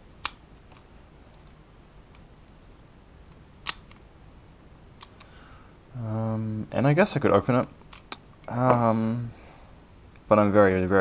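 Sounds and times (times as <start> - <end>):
padlock metallic click: 0.2 - 0.4, 3.6 - 4.0.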